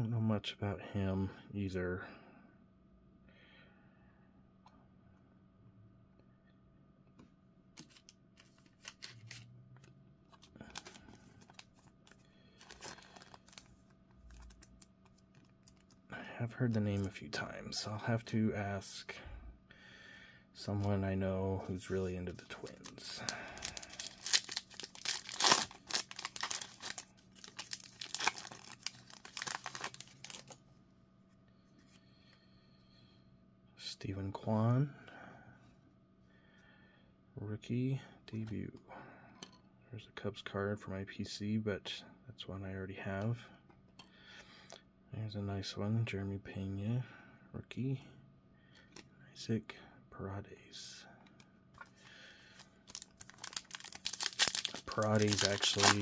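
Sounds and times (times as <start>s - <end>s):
plastic sleeve crinkling: 7.8s - 9.5s, 10.4s - 16.0s, 21.9s - 30.6s, 51.8s - 56.0s.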